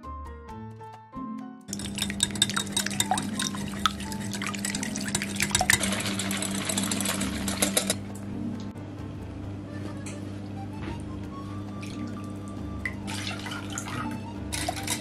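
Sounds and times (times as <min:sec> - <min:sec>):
whisk clinking against glass bowl: 0:01.7 - 0:08.0, 0:14.6 - 0:15.0.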